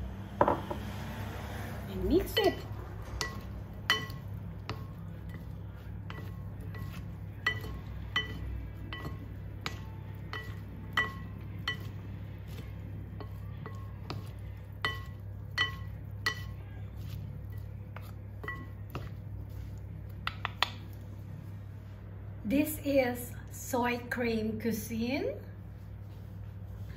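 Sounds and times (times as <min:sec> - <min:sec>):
fork clinking against glass bowl: 0:03.2 - 0:05.5, 0:06.1 - 0:12.0, 0:13.2 - 0:16.6.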